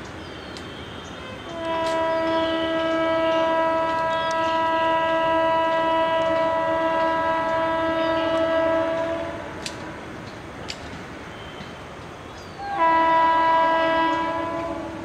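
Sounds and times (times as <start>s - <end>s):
locomotive air horn blast: 0.8s - 9.6s, 12.6s - 15.0s.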